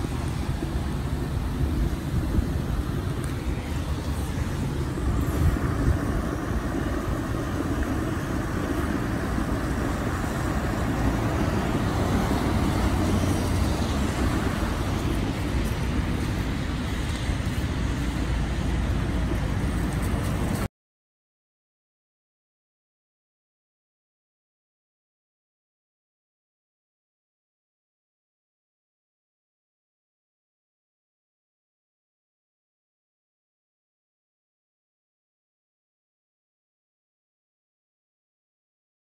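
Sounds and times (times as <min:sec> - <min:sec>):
vehicle rumbling on road: 0:00.0 - 0:20.7.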